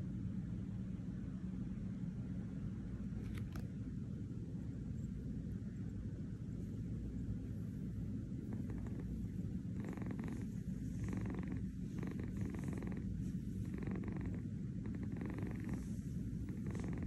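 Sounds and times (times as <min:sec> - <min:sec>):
kitten purring: 0:07.4 - 0:17.0.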